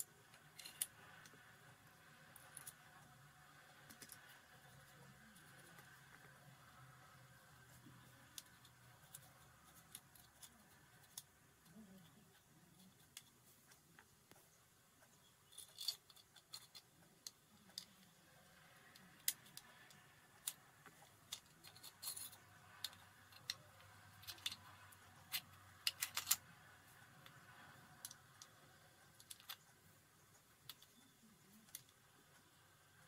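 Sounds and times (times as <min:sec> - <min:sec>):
metal pistol parts clicking: 0:15.5 - 0:18.0, 0:19.0 - 0:23.6, 0:24.2 - 0:26.5.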